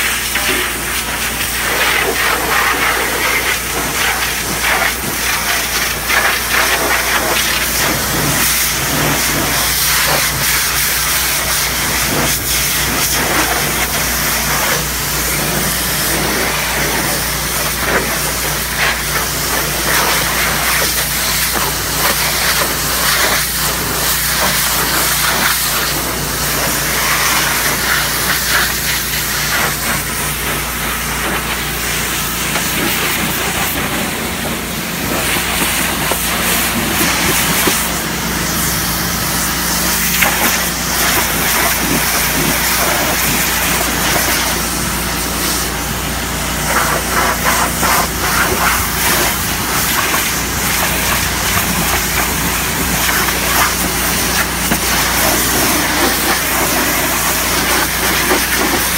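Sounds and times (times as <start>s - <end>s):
low machine hum: 0.0s - 58.9s
pressure washer spraying: 0.0s - 58.9s.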